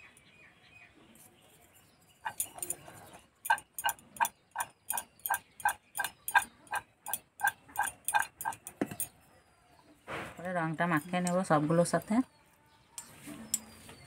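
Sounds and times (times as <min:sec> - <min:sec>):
metallic clinks against steel bowl: 0:02.2 - 0:06.5.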